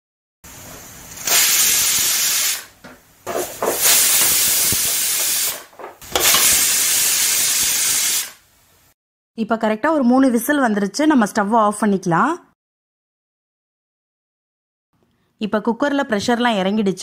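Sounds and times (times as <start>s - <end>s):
pressure cooker whistling: 1.2s - 2.7s, 3.8s - 8.4s.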